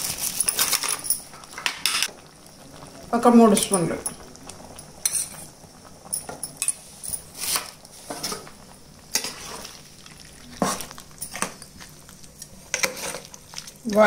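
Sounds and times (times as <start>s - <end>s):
faint sizzle: 0.0s - 14.0s
spoon scraping a steel pan: 12.7s - 13.3s.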